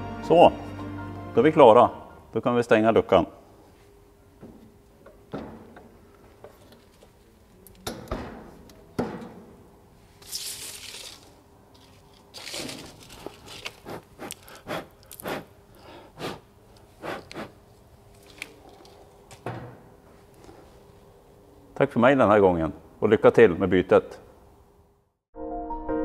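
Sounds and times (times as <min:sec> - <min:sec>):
rustling: 0:10.0 - 0:15.4.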